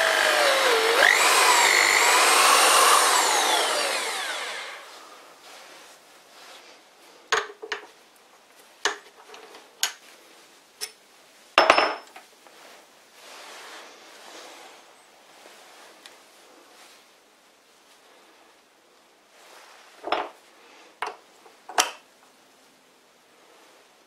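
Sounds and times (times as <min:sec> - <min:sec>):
drill spindle whining: 0:00.0 - 0:05.2.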